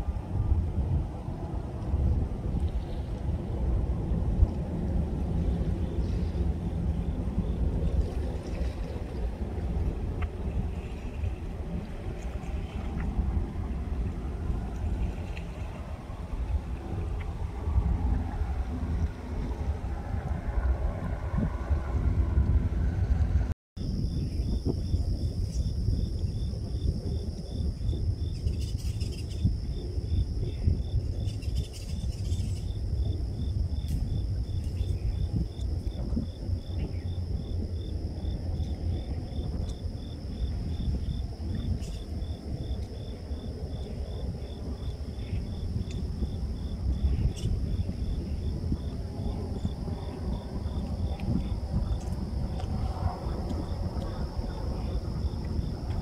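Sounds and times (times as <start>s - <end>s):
low rumble: 0.0s - 56.0s
insect chirping: 23.8s - 56.0s.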